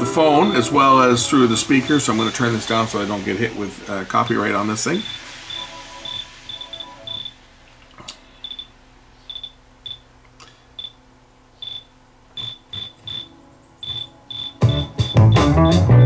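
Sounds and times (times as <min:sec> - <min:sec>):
short high-pitched chirps: 0:05.0 - 0:07.4, 0:08.4 - 0:08.7, 0:09.3 - 0:10.0, 0:11.6 - 0:15.8
loud music through speakers: 0:14.6 - 0:16.0.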